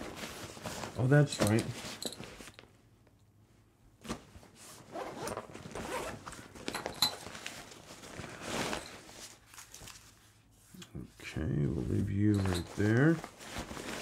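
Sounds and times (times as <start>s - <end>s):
nylon fabric rustling: 0.0s - 2.7s, 4.0s - 10.6s, 11.7s - 14.0s
zipper rasping: 4.9s - 6.3s.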